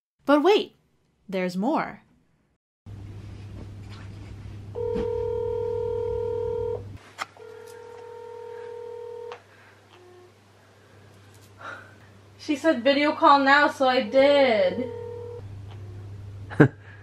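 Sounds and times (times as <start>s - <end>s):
video call ringing tones: 4.8s - 6.8s, 7.4s - 9.4s, 14.0s - 16.1s.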